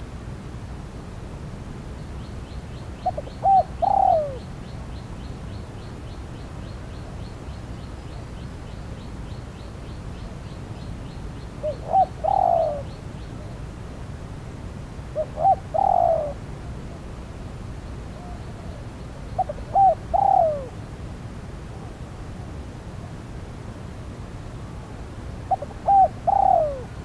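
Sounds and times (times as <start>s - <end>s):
dove cooing: 3.0s - 4.5s, 11.6s - 13.6s, 15.1s - 16.4s, 18.2s - 20.8s, 25.5s - 27.0s.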